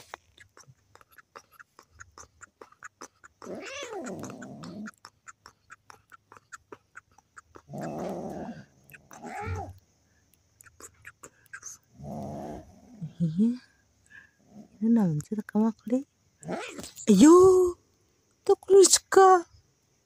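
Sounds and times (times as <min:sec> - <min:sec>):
young cat meowing: 0:03.4 - 0:04.9, 0:08.9 - 0:09.8.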